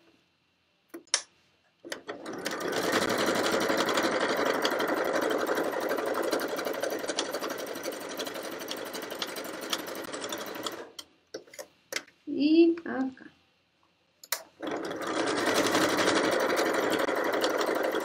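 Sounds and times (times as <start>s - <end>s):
sewing machine stitching: 1.9s - 11.0s, 14.6s - 18.0s.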